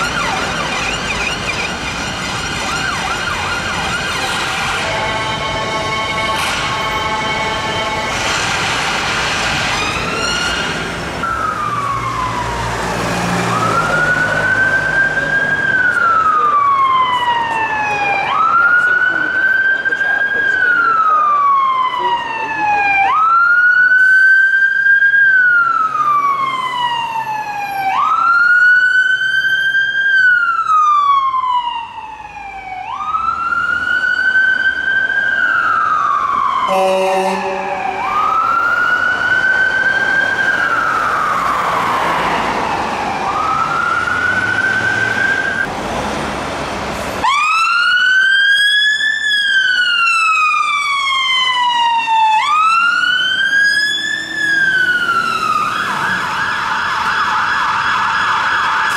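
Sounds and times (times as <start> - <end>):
emergency vehicle siren wailing: 0.0 - 58.9
passing traffic: 0.0 - 58.9
short horn blast: 36.7 - 38.1.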